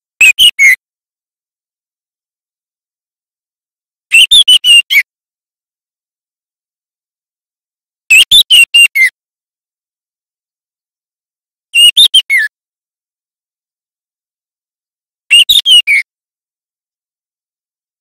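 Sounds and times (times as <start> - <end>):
bird singing whistled phrases: 15.3 - 16.0.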